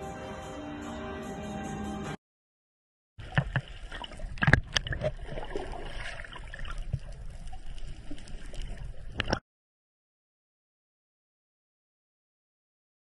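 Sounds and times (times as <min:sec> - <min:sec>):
water sloshing and gurgling: 0:03.2 - 0:09.4.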